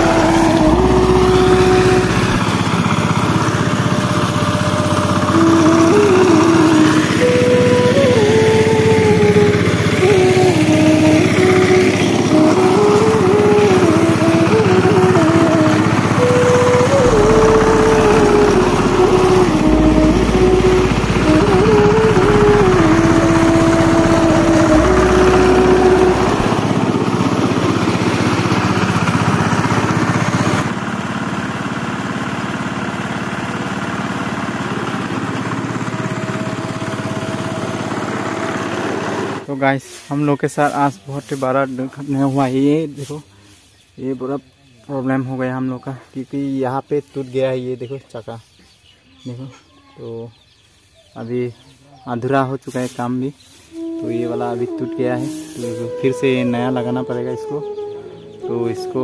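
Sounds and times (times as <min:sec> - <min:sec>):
diesel engine running under load: 0:00.0 - 0:39.5.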